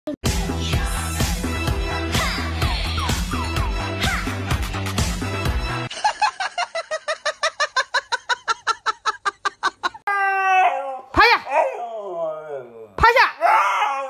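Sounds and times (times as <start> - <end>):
husky howling: 10.2 - 14.0.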